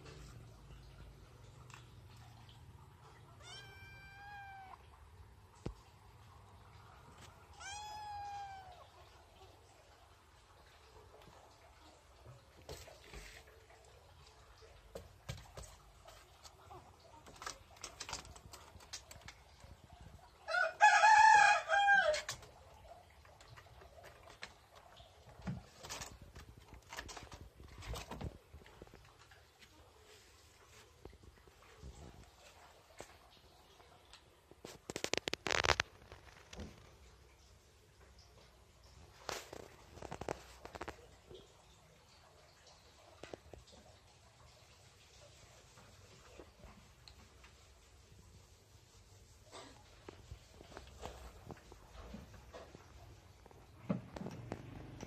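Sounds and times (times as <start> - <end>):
kitten meowing: 3.4 - 4.8, 7.5 - 8.9.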